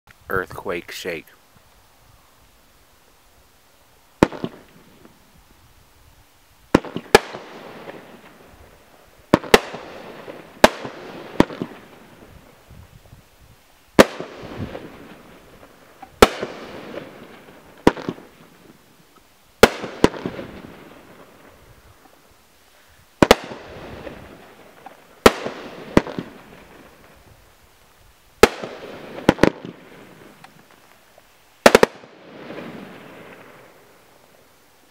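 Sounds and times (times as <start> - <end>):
firework cake bangs: 28.4 - 29.8.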